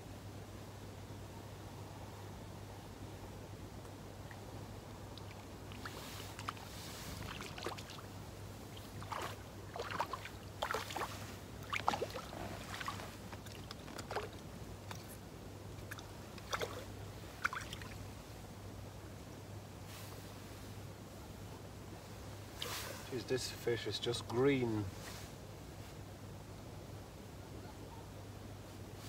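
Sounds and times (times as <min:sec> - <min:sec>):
fish splashing at water surface: 0:05.1 - 0:08.1, 0:08.8 - 0:15.1.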